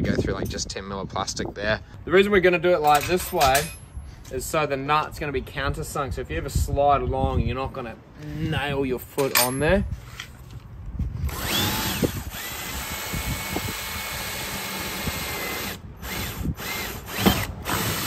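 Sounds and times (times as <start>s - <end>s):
cordless drill boring plastic: 11.3s - 18.0s.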